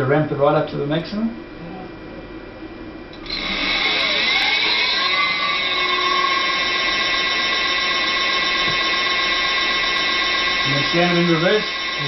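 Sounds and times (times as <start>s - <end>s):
electric motor whine: 3.2s - 12.0s.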